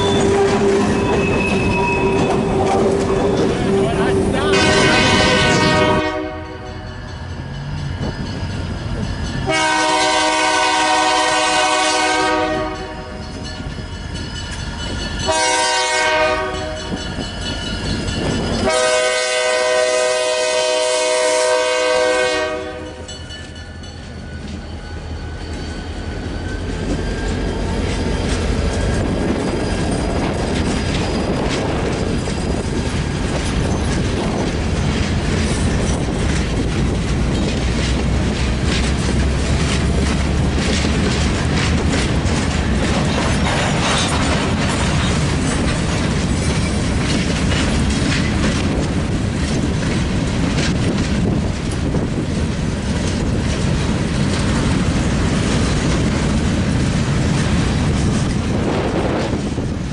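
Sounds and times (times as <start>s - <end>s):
train rumbling past: 0.0s - 59.9s
locomotive air horn blasts: 3.7s - 6.8s, 9.5s - 13.1s, 15.3s - 16.8s, 18.6s - 23.1s
wheels clicking over rail joints: 23.0s - 59.9s.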